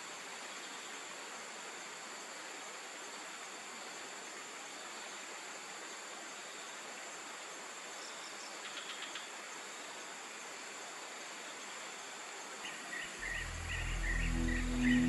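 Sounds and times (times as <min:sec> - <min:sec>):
insects droning: 0:00.0 - 0:15.0
short high chirps: 0:13.2 - 0:15.0.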